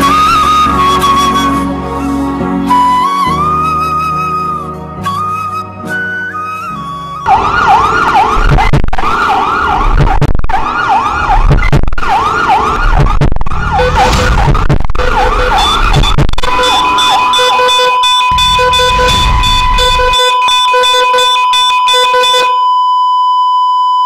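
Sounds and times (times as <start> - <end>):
siren wailing: 6.7 - 22.6
low thumping beat: 7.3 - 10.8, 11.4 - 12.2, 12.8 - 20.7
steady high tone: 13.6 - 22.6.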